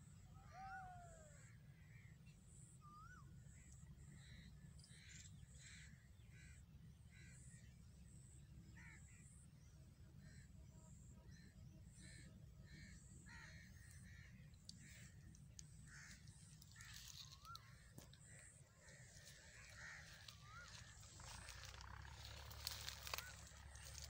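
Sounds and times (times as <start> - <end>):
low steady rumble: 0.0 - 24.0
bird calls: 10.2 - 24.0.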